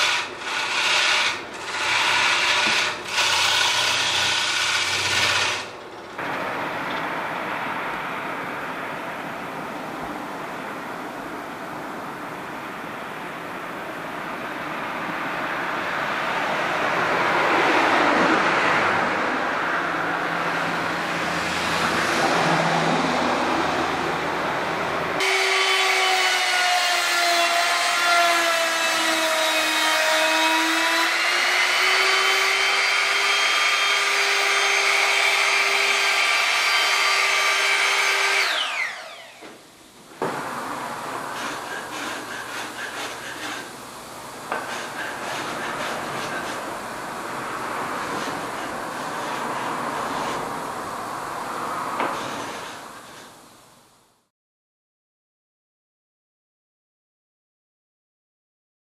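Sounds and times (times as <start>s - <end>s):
electric wood router whining: 0.0s - 5.7s, 25.2s - 39.6s.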